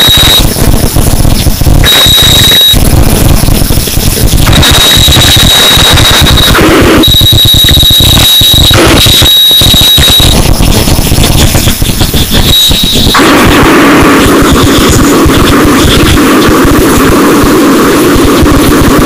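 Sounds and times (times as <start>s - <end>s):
distorted crackling noise music: 0.0s - 19.0s
shrill steady whistle: 1.8s - 2.8s, 12.4s - 13.2s.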